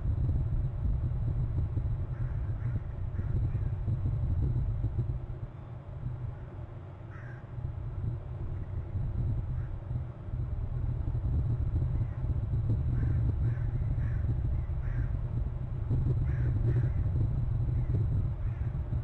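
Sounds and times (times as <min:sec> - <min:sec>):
steady low rumble: 0:00.0 - 0:19.0
crows cawing: 0:02.1 - 0:03.8, 0:07.1 - 0:07.6, 0:13.0 - 0:15.2, 0:16.2 - 0:17.1, 0:18.4 - 0:18.7.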